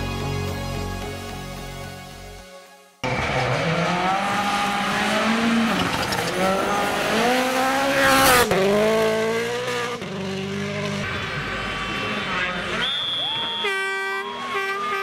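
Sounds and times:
rally car engine revving: 3.0 - 12.9.

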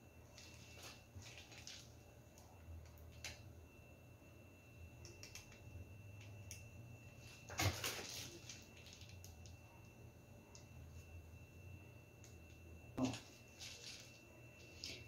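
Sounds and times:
steady low hum: 0.0 - 15.0
piping bags rustling: 0.4 - 2.1, 7.4 - 9.3, 13.0 - 15.0.

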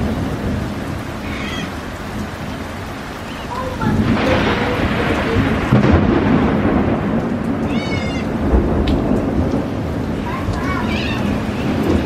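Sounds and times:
heavy rain: 0.0 - 12.0
thunder rumbling: 0.0 - 12.0
high wavering animal call: 1.2 - 1.8.

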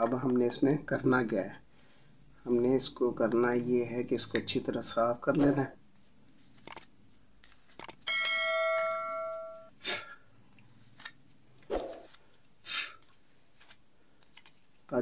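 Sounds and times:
bell-like chime: 8.1 - 9.7.

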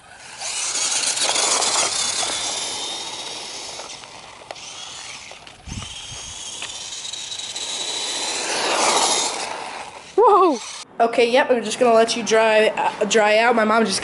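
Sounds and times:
faint motor whine: 0.0 - 10.8.

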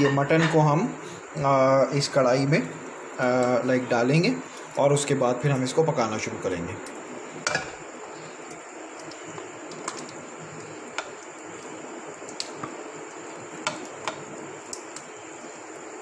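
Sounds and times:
steady low hiss: 0.0 - 16.0.

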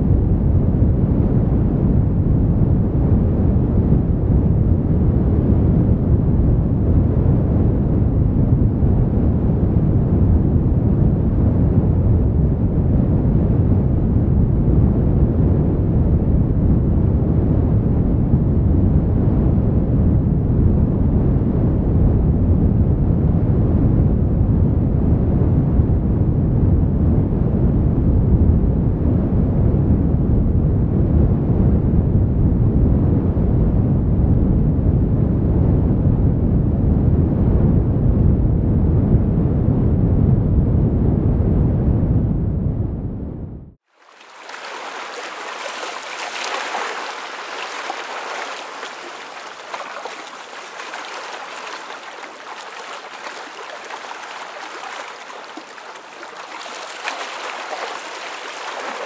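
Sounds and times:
wind buffeting microphone: 44.0 - 59.0.

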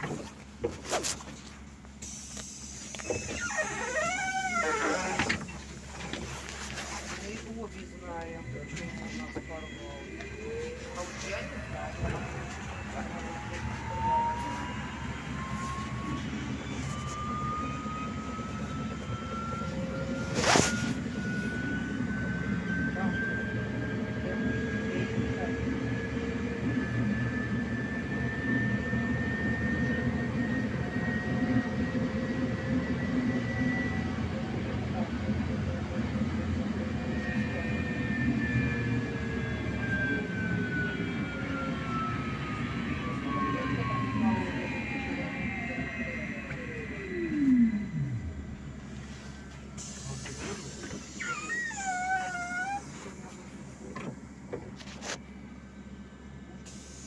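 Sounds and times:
low rumble of bus ride: 0.0 - 57.0
low ride rumble: 2.7 - 25.6
electric traction drive whining: 37.3 - 48.9.

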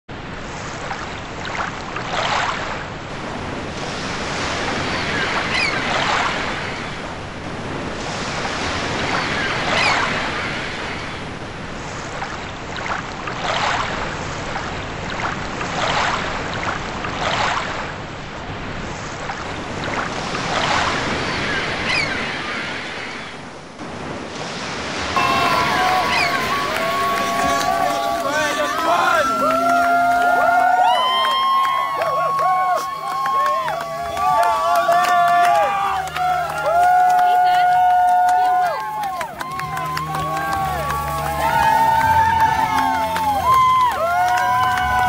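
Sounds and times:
waves splashing around boat: 0.1 - 45.0.

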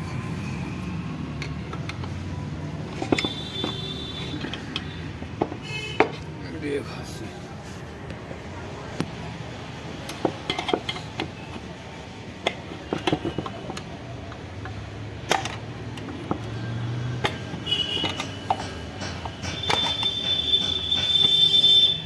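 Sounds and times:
tools clicking and tapping: 0.8 - 6.3, 10.0 - 22.0.

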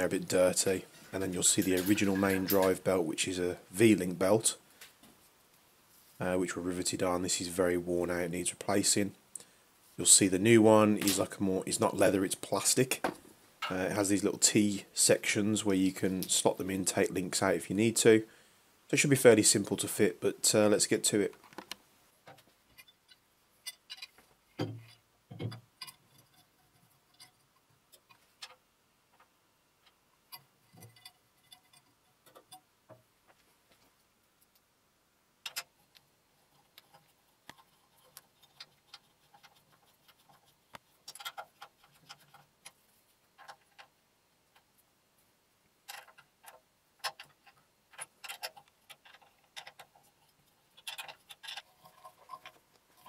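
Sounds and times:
metal bolts and tools clicking: 1.0 - 2.9, 22.7 - 28.6, 29.2 - 32.7, 35.4 - 42.8, 45.8 - 53.0.

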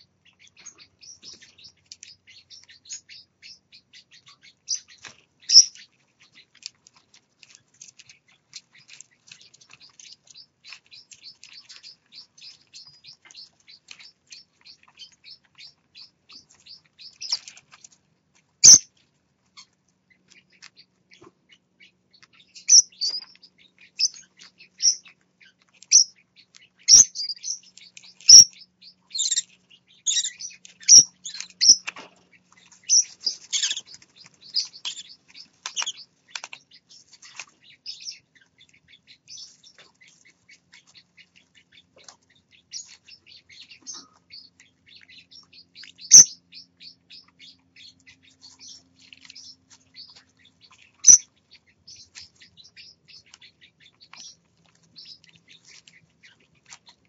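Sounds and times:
chicks begging chirps: 0.0 - 57.0.

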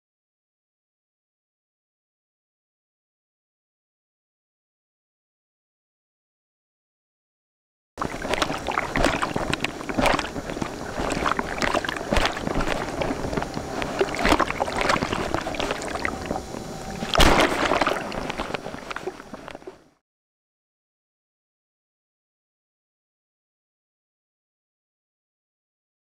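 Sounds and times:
board slapping on water: 8.0 - 19.8
rushing water and spray: 8.0 - 19.9.

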